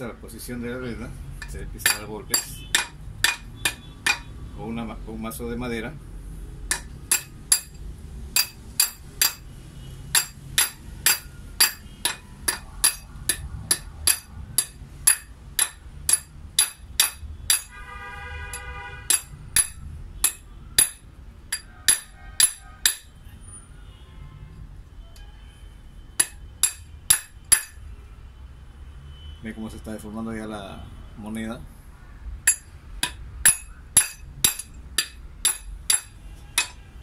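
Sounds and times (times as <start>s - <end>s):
mallet knocking on metal: 1.4s - 4.3s, 6.7s - 7.8s, 8.4s - 9.4s, 10.1s - 17.8s, 18.5s - 23.1s, 26.2s - 27.8s, 32.5s - 36.8s.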